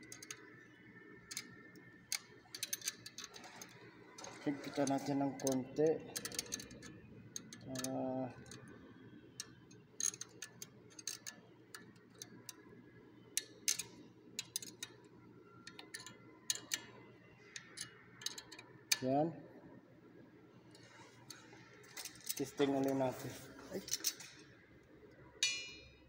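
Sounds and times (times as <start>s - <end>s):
wrench clicking on a nut: 2.1s - 3.4s, 6.2s - 8.6s, 9.4s - 12.6s, 13.4s - 15.0s, 15.7s - 16.8s, 17.8s - 19.0s.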